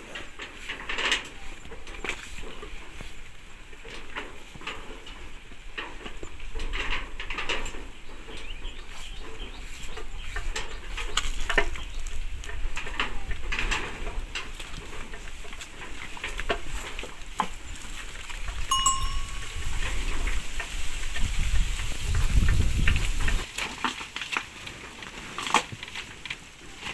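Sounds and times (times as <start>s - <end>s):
chickens clucking: 0.0s - 23.4s
low wind rumble: 5.2s - 23.5s.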